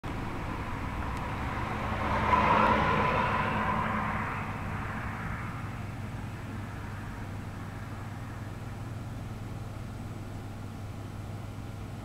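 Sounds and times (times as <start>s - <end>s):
low background hum: 0.1s - 12.0s
vehicle passing by: 0.2s - 8.8s.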